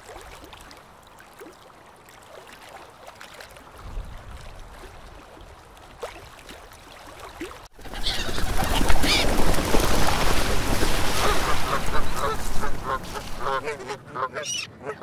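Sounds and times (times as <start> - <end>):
flamingos honking and chattering: 11.1 - 15.0.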